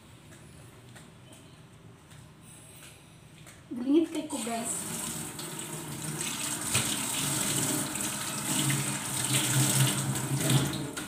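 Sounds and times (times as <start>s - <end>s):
water running from a tap: 4.3s - 11.0s.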